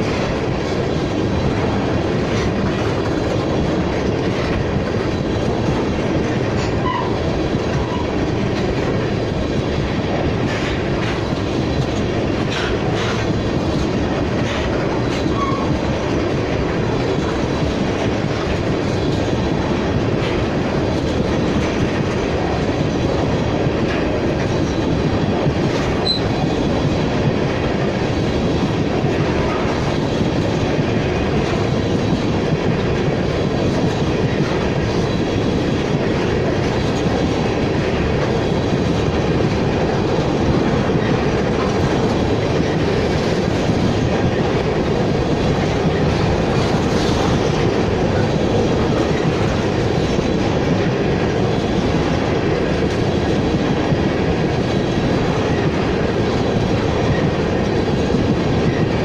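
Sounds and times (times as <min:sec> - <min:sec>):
rail clacks: 0:00.0 - 0:59.0
train wheels rumbling on rail: 0:00.0 - 0:59.0.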